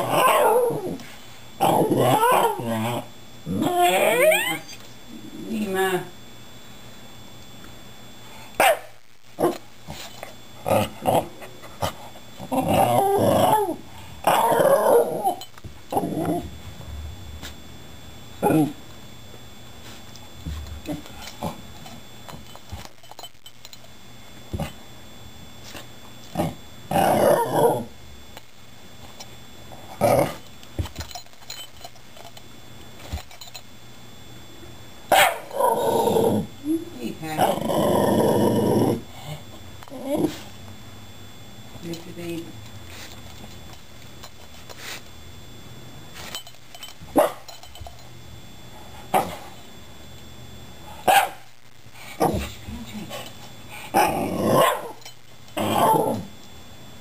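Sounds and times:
dog growly grumbling: 0:01.6 - 0:04.6, 0:10.6 - 0:11.4, 0:12.4 - 0:17.5, 0:18.4 - 0:18.8, 0:26.3 - 0:27.9, 0:30.0 - 0:30.4, 0:35.6 - 0:36.5, 0:37.3 - 0:40.4, 0:52.2 - 0:54.6, 0:55.6 - 0:56.3.

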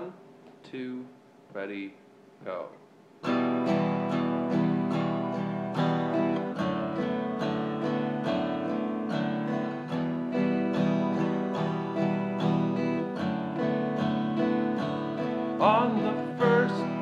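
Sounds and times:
acoustic guitar strumming: 0:03.2 - 0:17.0.

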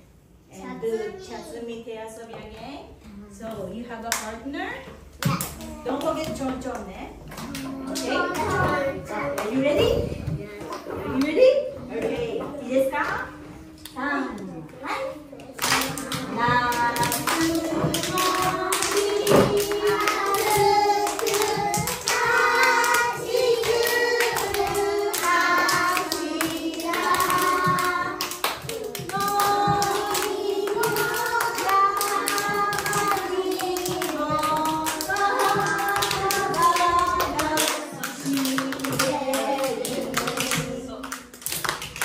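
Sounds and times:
children singing: 0:15.6 - 0:41.0.

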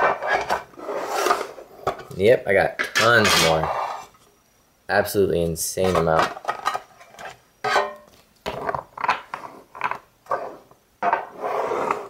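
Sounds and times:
cards rustling and scraping: 0:00.0 - 0:01.6.

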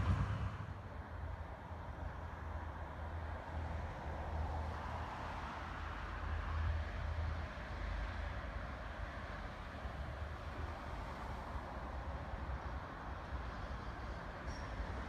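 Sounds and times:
wind buffeting microphone: 0:00.0 - 0:01.0
distant vehicles hiss: 0:00.0 - 0:15.0.

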